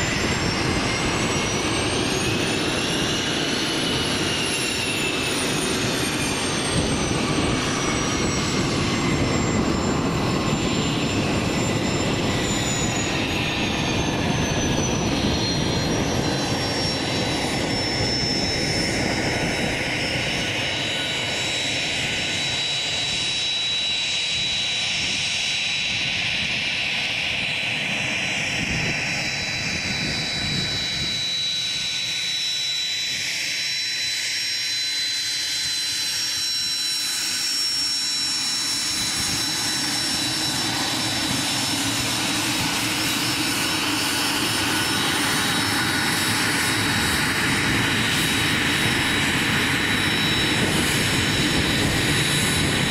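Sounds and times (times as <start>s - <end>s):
jet engine high whine: 0.0s - 52.9s
jet engine rumble: 0.0s - 52.9s.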